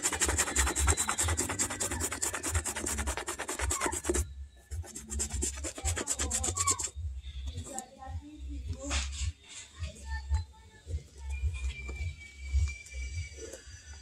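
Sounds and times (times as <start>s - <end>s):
toothbrush scrubbing suede boot: 0.0s - 7.0s.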